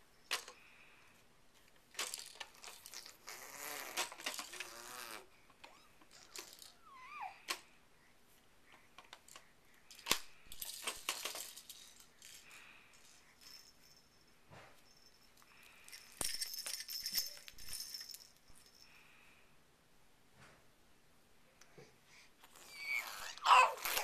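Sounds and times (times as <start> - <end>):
high-pitched toy rattling: 2.0 - 7.2, 15.8 - 18.8.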